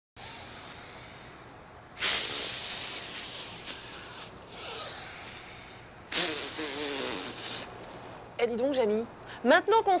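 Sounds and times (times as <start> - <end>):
woman breathing deeply: 0.2 - 6.0.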